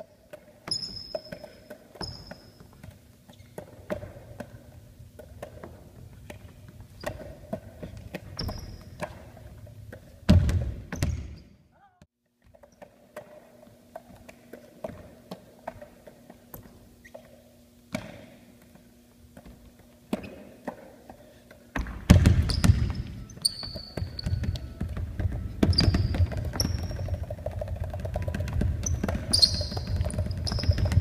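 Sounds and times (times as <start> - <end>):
sneakers squeaking: 0.0 - 31.0
basketball bouncing on wooden floor: 0.6 - 4.6, 5.2 - 9.3, 9.9 - 11.4, 21.7 - 31.0.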